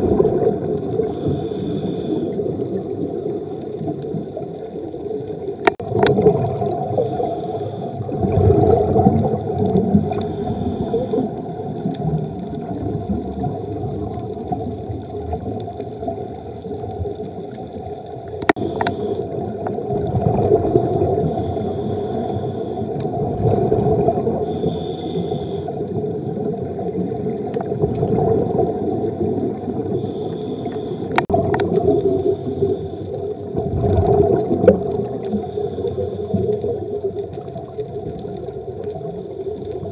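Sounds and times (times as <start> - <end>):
diver exhaling bubbles underwater: 0.0 - 3.4, 5.7 - 16.2, 18.5 - 36.9
regulator inhalation hiss: 1.0 - 2.4, 6.9 - 8.1, 10.2 - 11.3, 18.6 - 19.4, 21.2 - 23.0, 24.4 - 25.8, 29.9 - 31.3, 32.0 - 33.3, 35.3 - 36.5
faint clicks: 9.0 - 12.6, 16.9 - 20.2, 29.4 - 39.9.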